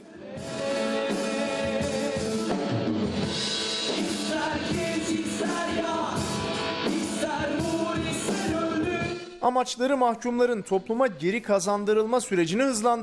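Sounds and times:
man singing into a microphone: 0.0s - 2.5s, 4.2s - 6.3s, 7.0s - 10.5s
acoustic and electric guitars: 0.3s - 9.3s
drum kit: 0.4s - 9.4s.

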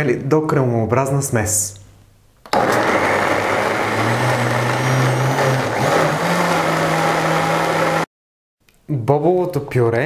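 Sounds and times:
blender running: 2.5s - 8.1s.

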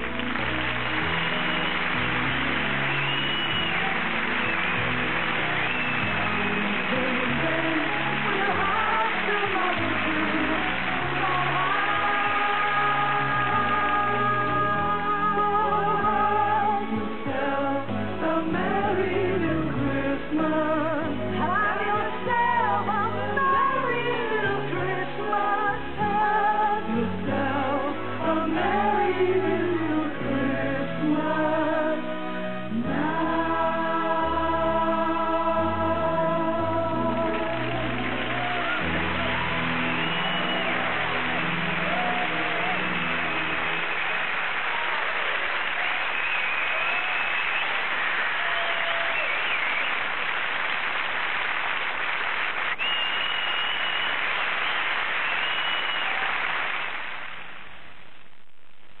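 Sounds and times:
audience applauding and cheering: 0.0s - 17.5s, 33.0s - 58.1s
long whistles: 2.9s - 5.0s, 39.7s - 40.9s, 46.0s - 50.2s, 52.7s - 56.3s
group of voices singing: 6.7s - 39.2s.

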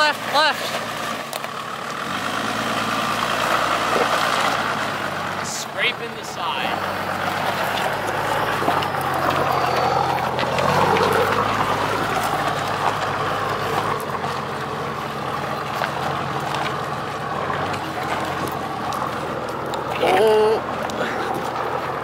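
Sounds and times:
diesel engine running: 0.0s - 22.0s.

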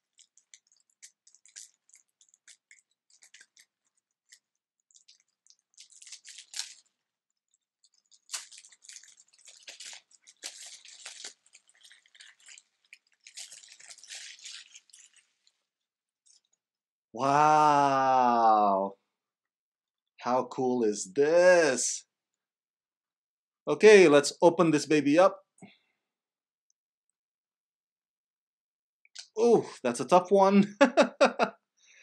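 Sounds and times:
cellophane crinkling: 0.0s - 16.5s.

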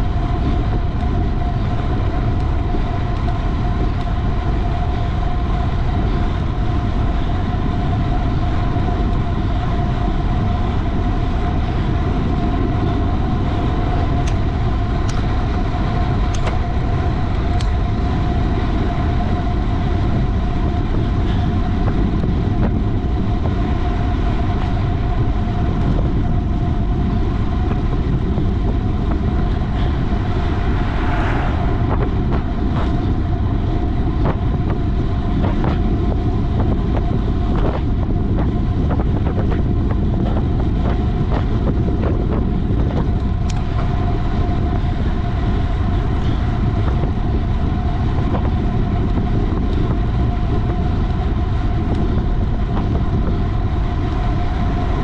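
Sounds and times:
bicycle tyre rumble: 0.0s - 55.0s
thin steady whine: 0.0s - 55.0s
wind rushing over microphone: 0.0s - 55.0s.

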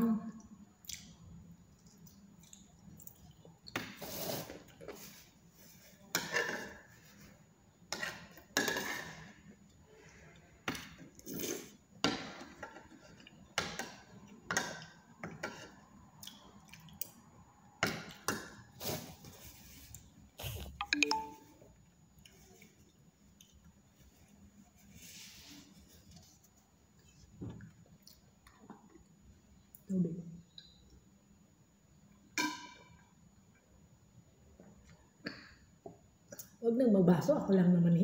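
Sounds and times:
chewing: 16.2s - 17.2s.

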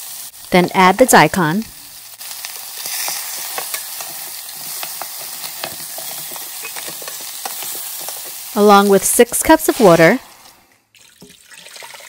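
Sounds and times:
meat sizzling in a pot: 0.0s - 12.0s
wooden spatula clacking on pot: 3.4s - 8.5s.

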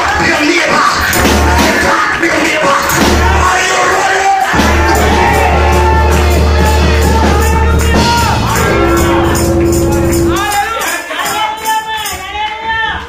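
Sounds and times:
congregation singing and shouting: 0.0s - 12.7s
held low bass note: 4.6s - 10.4s.

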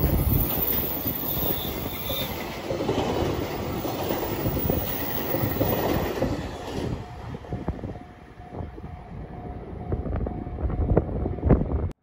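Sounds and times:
freight train wagons rolling: 0.0s - 8.5s.

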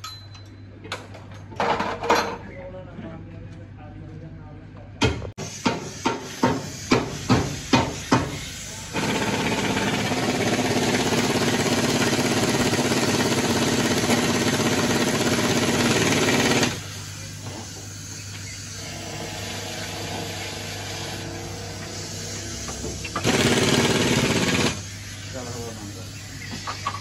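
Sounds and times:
loud rapid mechanical rattling: 7.9s - 17.2s, 18.6s - 22.4s, 23.0s - 25.9s.

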